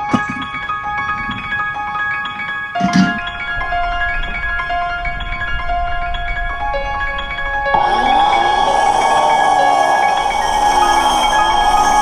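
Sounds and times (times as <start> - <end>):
circular saw running: 7.8 - 12.0.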